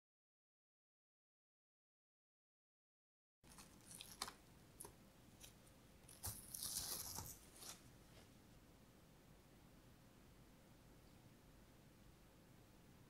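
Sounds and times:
cling film crinkling: 0:03.5 - 0:07.9.

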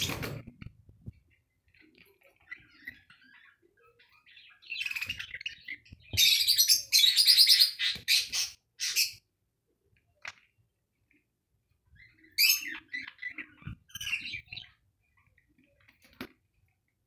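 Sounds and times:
budgerigar chirping: 0:02.5 - 0:09.2.

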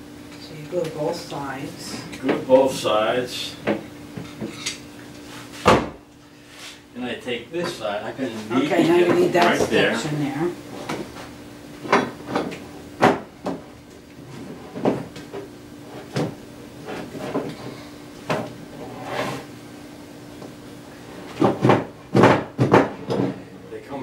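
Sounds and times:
wooden poles knocking: 0:21.4 - 0:23.3.

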